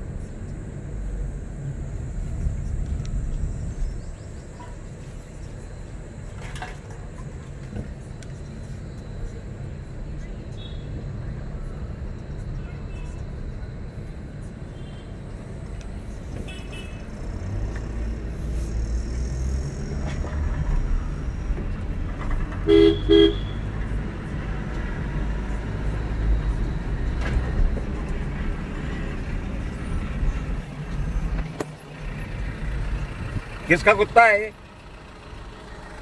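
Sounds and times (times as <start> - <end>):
car driving rumble from inside: 0.0 - 36.0
car horn tooting: 16.4 - 17.1, 22.6 - 23.7.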